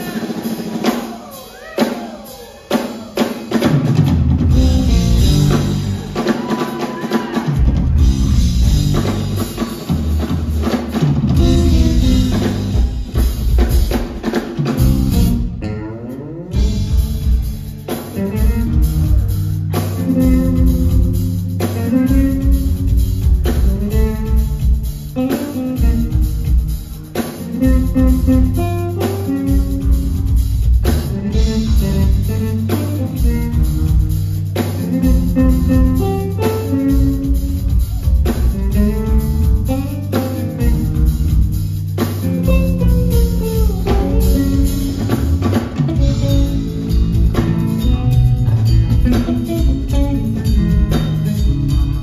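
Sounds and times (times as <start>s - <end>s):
live band with bass and drums: 0.0s - 52.0s.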